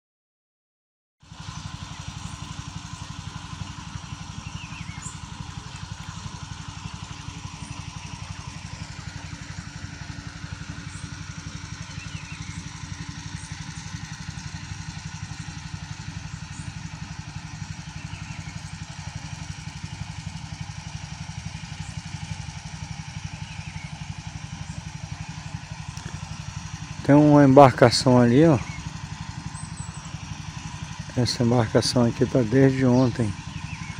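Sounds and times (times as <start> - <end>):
engine idling: 1.2 - 33.9.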